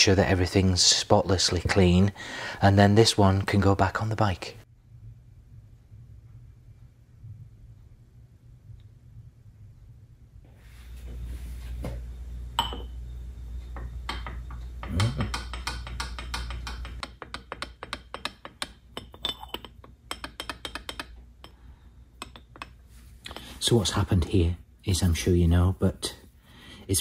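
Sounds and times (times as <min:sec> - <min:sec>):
low hum: 0:04.7 - 0:17.1
metal cover tapping on stone: 0:12.6 - 0:12.9, 0:13.8 - 0:21.6.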